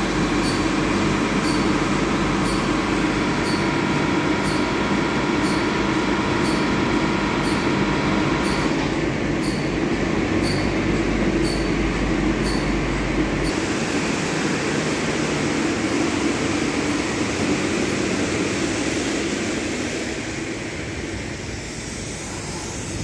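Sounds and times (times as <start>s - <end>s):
car wash brushes and spray: 13.6s - 23.0s.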